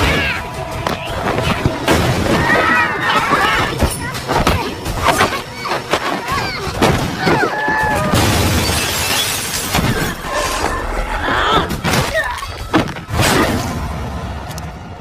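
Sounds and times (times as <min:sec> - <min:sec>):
fight blows and crashes: 0:00.0 - 0:10.7
glass and crockery shattering: 0:08.1 - 0:10.2.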